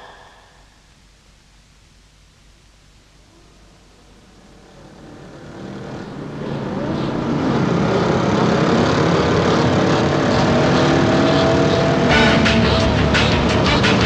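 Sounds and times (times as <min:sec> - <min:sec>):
motorcycle engines: 0:04.2 - 0:14.0.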